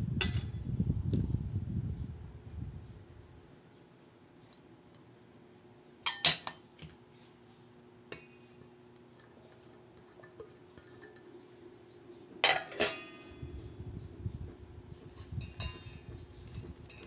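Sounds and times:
vegetables clinking in steel bowl: 12.4 - 13.4.

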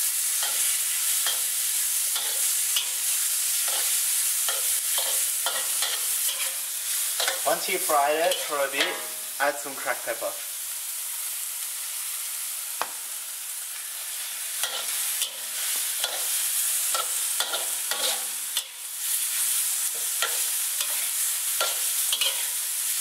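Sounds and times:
food sizzling in a wok: 0.0 - 23.0
metal spatula scraping wok: 0.3 - 9.3, 14.5 - 22.6.

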